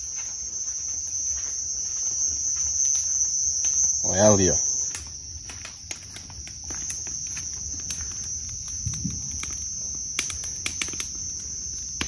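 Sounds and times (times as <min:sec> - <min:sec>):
bonfire crackling and popping: 0:00.0 - 0:12.0
insects chirring: 0:00.0 - 0:12.0.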